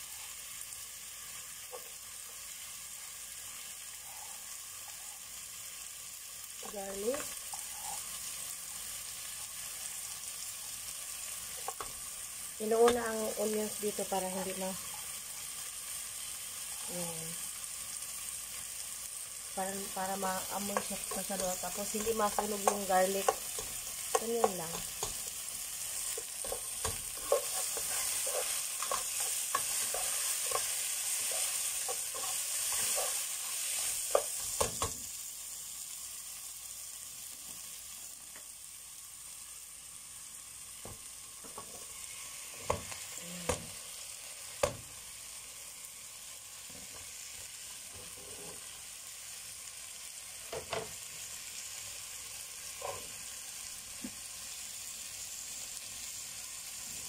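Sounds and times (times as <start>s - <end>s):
onions sizzling in a pan: 0.0s - 57.0s
spatula knocking on pan: 21.9s - 25.2s.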